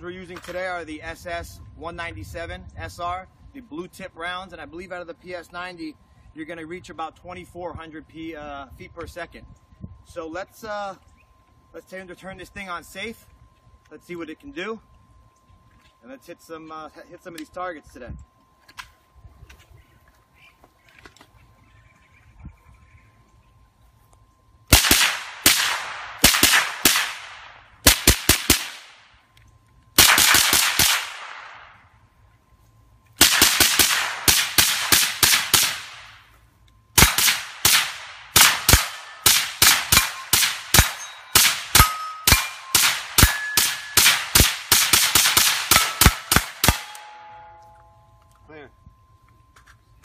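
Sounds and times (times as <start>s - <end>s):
suppressed rifle rapid fire: 24.7s - 29.0s, 30.0s - 31.7s, 33.2s - 36.2s, 37.0s - 47.1s.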